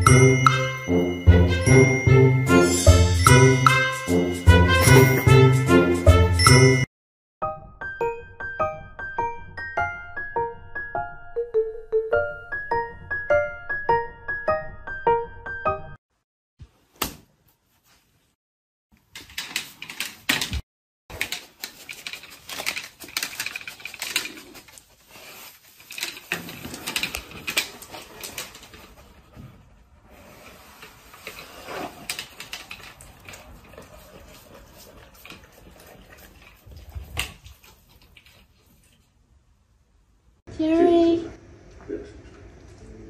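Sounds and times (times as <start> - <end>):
dog claws clicking on tiled floor: 19.0 - 25.0, 25.7 - 29.4, 31.2 - 39.0.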